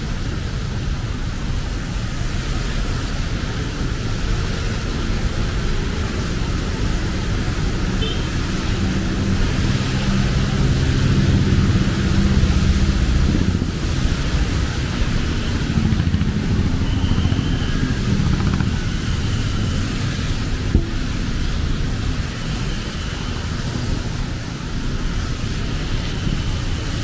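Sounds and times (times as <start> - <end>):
motorcycles passing: 0.2 - 27.0
cars passing: 3.3 - 27.0.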